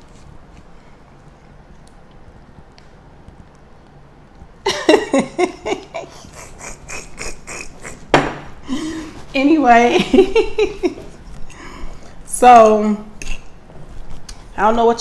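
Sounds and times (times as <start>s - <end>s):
hearty laughter: 4.7s - 8.1s, 10.0s - 11.2s.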